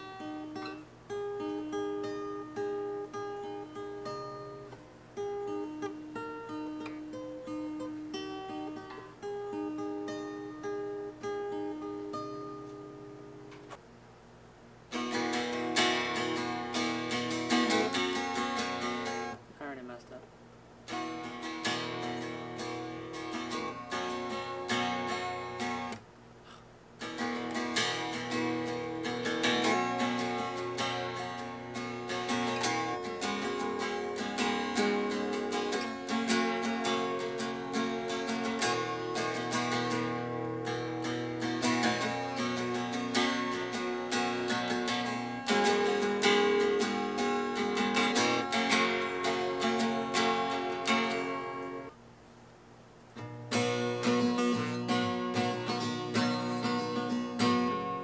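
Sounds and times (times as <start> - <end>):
acoustic guitar: 0.0 - 14.0, 14.7 - 58.0.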